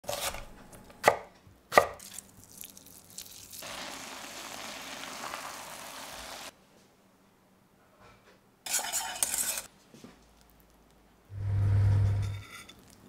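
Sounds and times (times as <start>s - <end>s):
knife chopping on wooden board: 1.0s - 2.0s
frying pan sizzling: 3.4s - 6.5s.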